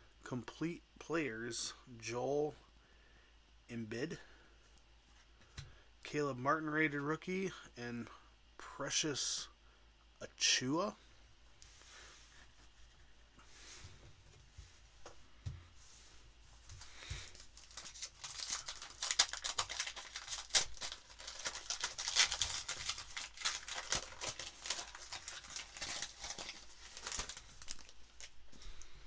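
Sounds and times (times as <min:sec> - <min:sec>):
foil wrapper crinkling and tearing: 0:16.8 - 0:28.8.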